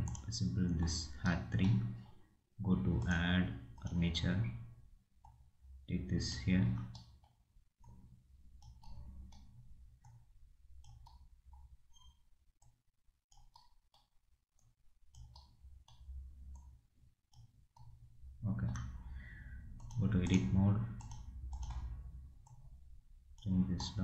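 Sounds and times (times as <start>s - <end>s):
mouse and keyboard clicks: 6.8s - 10.2s, 10.8s - 16.7s, 19.8s - 22.6s.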